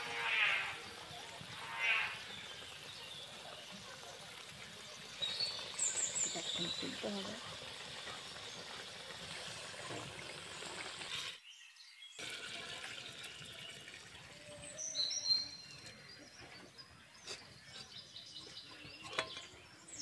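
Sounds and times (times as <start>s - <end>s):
birds chirping: 0.0s - 7.5s, 13.1s - 20.0s
curry simmering in a pot: 0.0s - 16.3s
curry pouring into a bowl: 12.2s - 14.6s.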